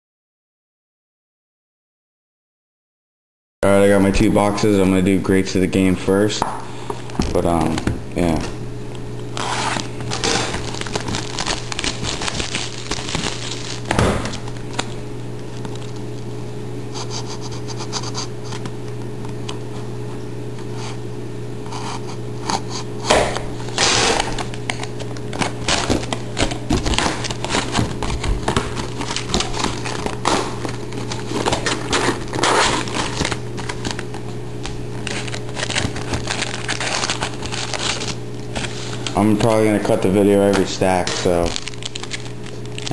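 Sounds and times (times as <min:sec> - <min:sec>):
steady low hum: 0:03.6 - 0:42.9
plastic crinkling: 0:09.2 - 0:16.3, 0:23.6 - 0:42.9.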